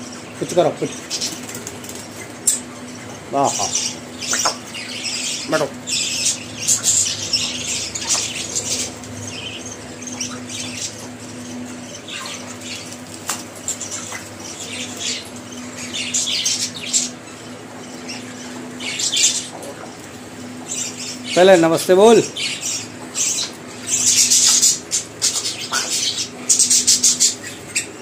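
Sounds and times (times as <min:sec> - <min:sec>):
steady low hum: 0:00.0 - 0:28.0
parrot squawking: 0:02.2 - 0:13.0.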